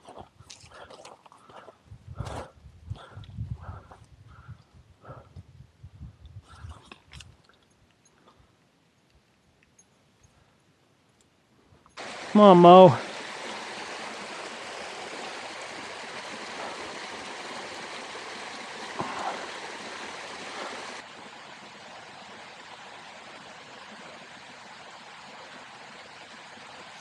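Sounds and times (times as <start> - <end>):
creek rushing over rocks: 12.0 - 27.0.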